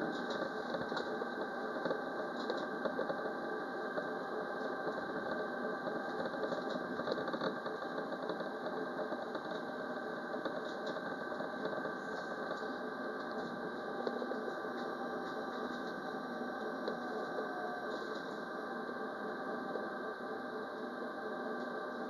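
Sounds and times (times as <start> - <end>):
tram motors and wheels humming: 10.3 - 20.0.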